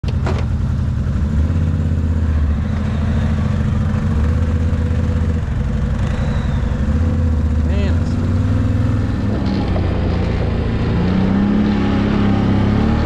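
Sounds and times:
atv engine rumbling: 0:00.0 - 0:13.0.

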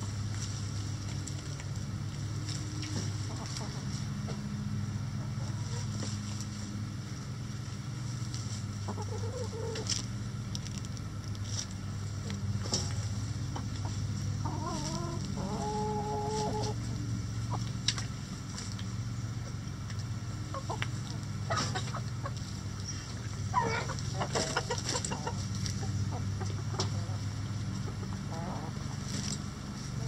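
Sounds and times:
chickens clucking: 0:00.0 - 0:30.0
steady low hum: 0:00.0 - 0:30.0
drawn-out chicken call: 0:02.8 - 0:06.8, 0:08.7 - 0:10.1, 0:13.3 - 0:17.8, 0:20.2 - 0:30.0.

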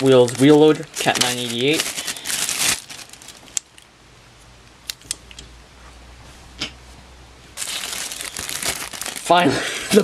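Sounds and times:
plastic bag crinkling: 0:00.0 - 0:03.6, 0:07.6 - 0:10.0.

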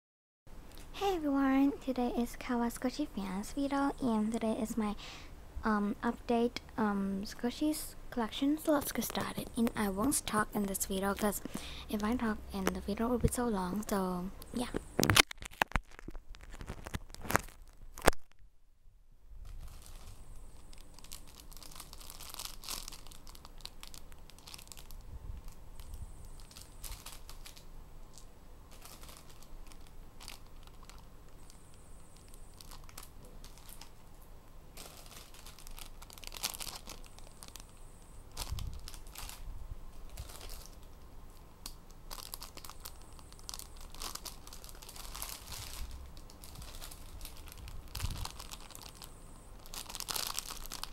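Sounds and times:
plastic bags crinkling: 0:08.6 - 0:13.4, 0:14.5 - 0:18.4, 0:19.4 - 0:50.9.

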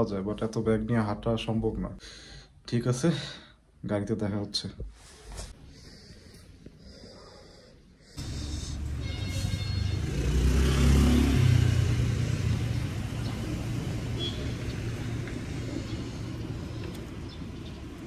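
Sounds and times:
car engine driving past: 0:08.2 - 0:18.0.

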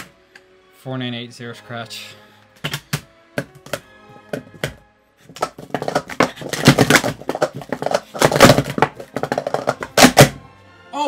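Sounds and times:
plastic cups clattering: 0:02.6 - 0:10.4.

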